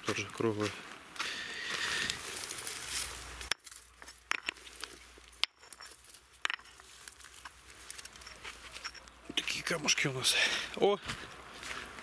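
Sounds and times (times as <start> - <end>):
stones rustling and scraping: 1.6 - 10.0
stones clicking and knocking: 3.4 - 9.8.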